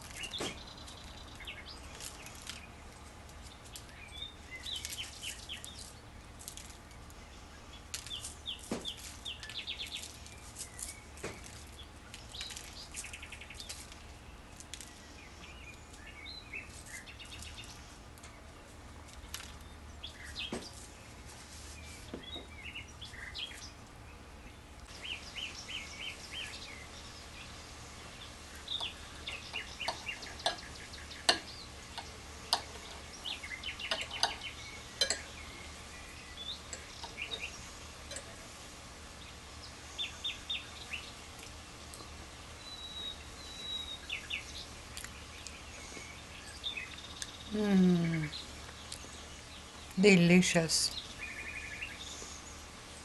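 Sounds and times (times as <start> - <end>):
birds chirping trills: 0.0 - 53.0
cutlery clinking on plate: 35.0 - 35.3.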